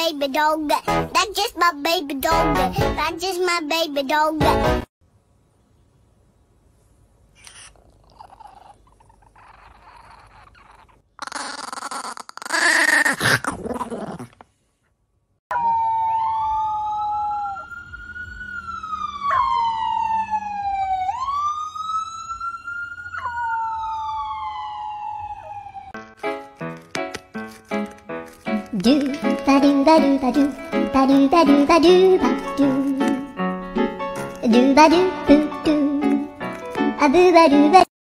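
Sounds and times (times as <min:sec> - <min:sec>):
puppy howling: 0:15.5 - 0:17.7, 0:19.2 - 0:19.9, 0:23.2 - 0:24.2
siren wailing: 0:15.5 - 0:26.0.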